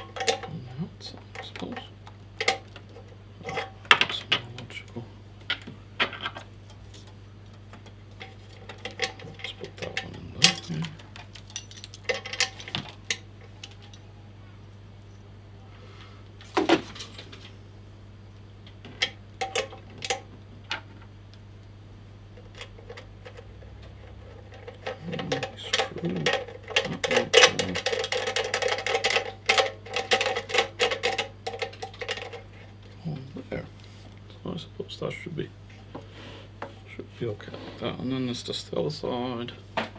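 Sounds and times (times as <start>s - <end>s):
metal parts clinking: 0.0s - 0.5s, 8.2s - 14.0s, 24.2s - 32.4s
rattling and scraping: 22.4s - 32.8s.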